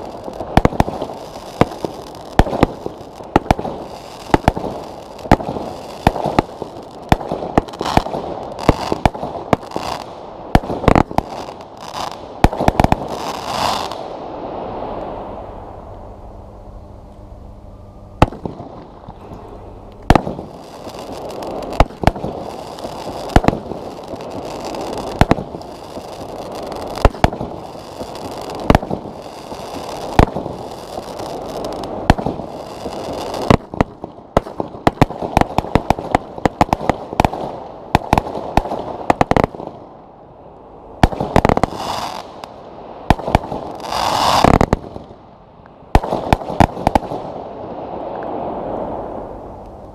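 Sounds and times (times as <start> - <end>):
steady hiss: 0.0 - 33.9
fireworks crackle: 0.0 - 39.8, 41.0 - 45.2, 45.9 - 49.9
fireworks shots: 0.0 - 39.8, 41.0 - 45.2, 45.9 - 49.9.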